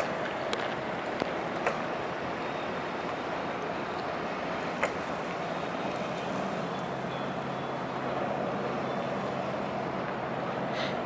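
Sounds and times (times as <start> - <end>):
boat engines droning: 0.0 - 11.0.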